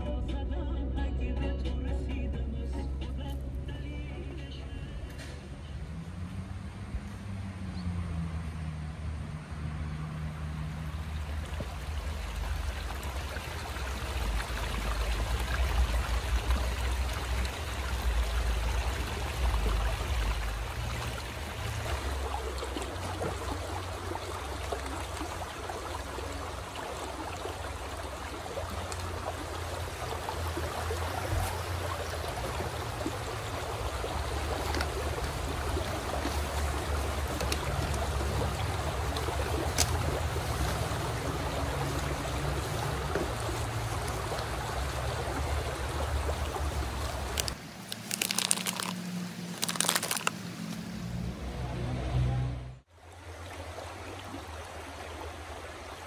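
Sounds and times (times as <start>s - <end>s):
stream rushing over rocks: 10.0s - 50.6s.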